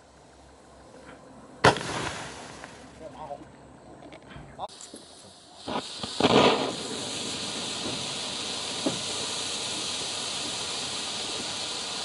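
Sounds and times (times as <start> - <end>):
flare igniting burst: 1.6 - 3.0, 4.7 - 12.0
flare burning with hiss: 1.6 - 3.2, 4.6 - 12.0.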